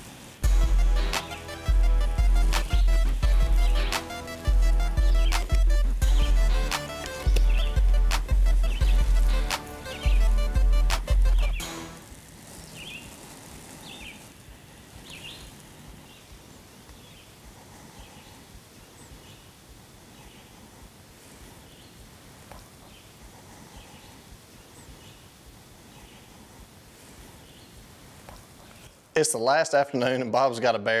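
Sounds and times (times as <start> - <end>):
birds chirping: 0.0 - 29.1
low even hiss: 0.0 - 31.0.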